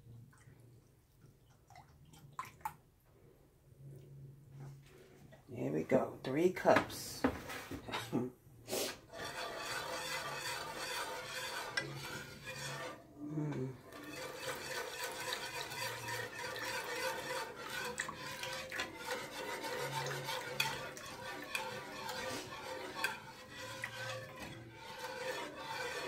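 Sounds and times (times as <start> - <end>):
whisk scraping a pan: 8.7 - 26.0.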